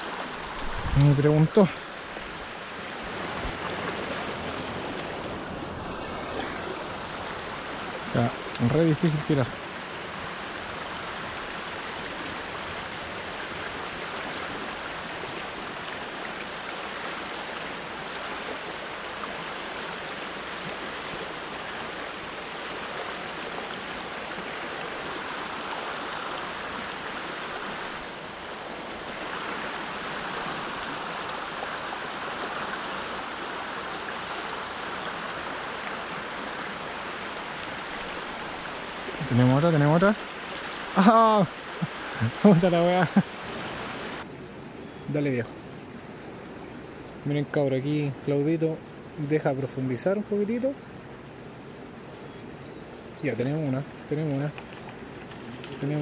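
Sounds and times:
fast river rushing: 0.0s - 56.0s.

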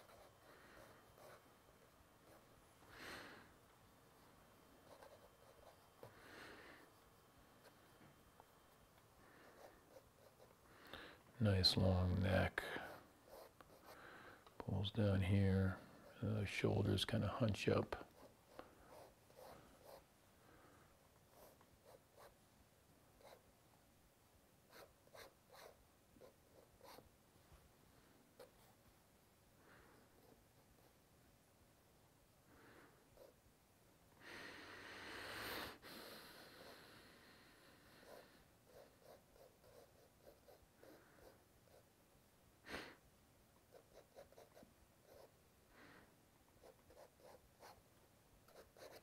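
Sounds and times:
pen nib scratching paper: 0.0s - 1.5s, 4.8s - 6.2s, 18.0s - 20.1s, 24.7s - 27.1s, 38.0s - 41.9s, 43.7s - 45.4s, 46.6s - 47.8s, 48.4s - 49.0s.

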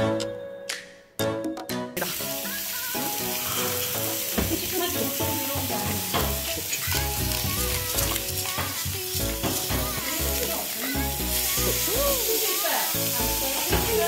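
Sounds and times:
steaks sizzling in frying pan: 2.0s - 14.0s
music with steady beat: 3.2s - 12.3s.

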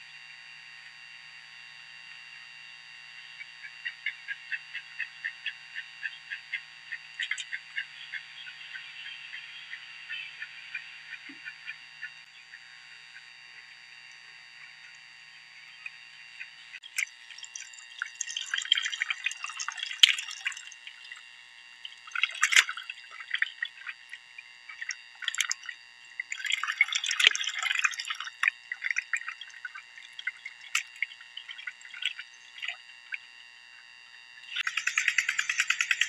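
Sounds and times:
water splashing and dripping: 16.8s - 21.2s, 21.9s - 33.2s.

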